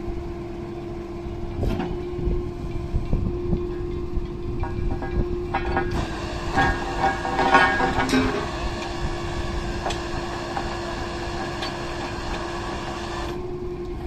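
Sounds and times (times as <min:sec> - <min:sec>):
drilling rig engine running: 0:00.0 - 0:14.0
metal clanks of drill pipe: 0:03.6 - 0:13.4.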